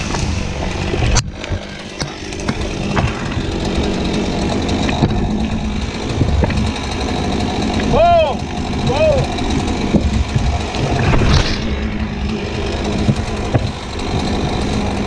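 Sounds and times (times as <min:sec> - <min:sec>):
chainsaw running: 0:00.0 - 0:15.0.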